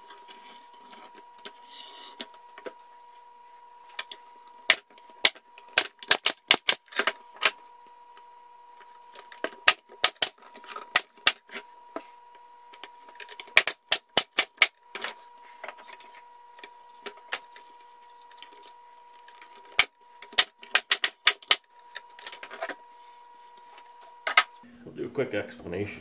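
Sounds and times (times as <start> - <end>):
pneumatic nail gun firing: 4.7 - 7.5, 9.6 - 11.4, 13.5 - 14.8, 19.7 - 21.7.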